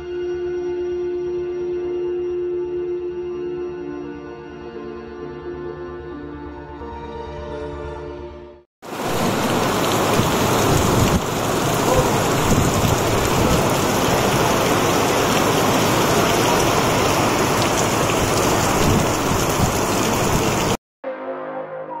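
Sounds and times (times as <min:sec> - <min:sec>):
heavy rain pouring: 0:08.8 - 0:20.8.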